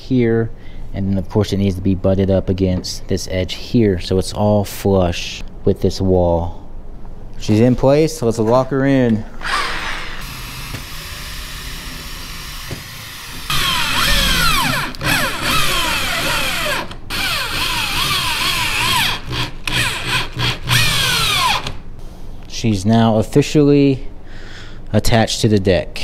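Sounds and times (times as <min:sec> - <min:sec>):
power drill whining: 0:09.4 - 0:21.8.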